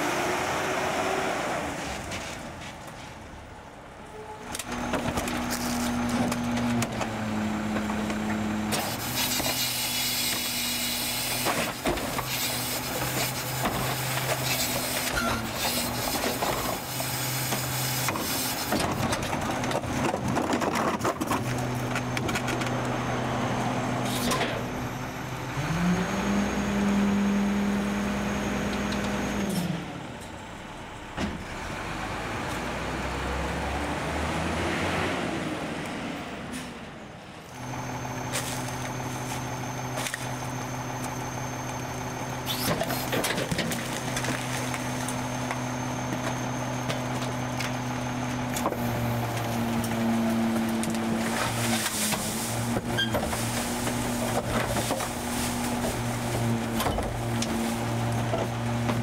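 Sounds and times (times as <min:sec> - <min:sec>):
garbage truck diesel engine: 0:00.0 - 0:59.0
trash clattering into hopper: 0:48.6 - 0:59.0.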